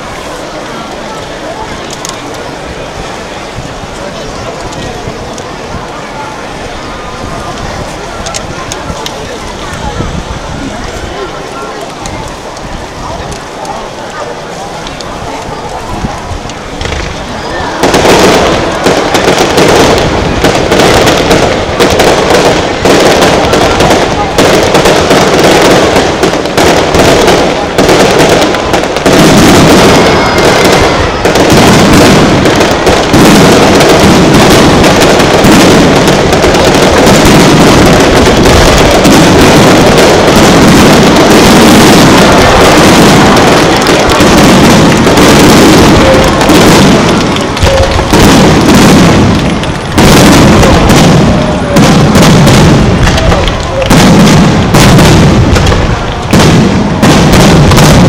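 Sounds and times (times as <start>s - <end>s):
fireworks bangs: 0.0s - 58.0s.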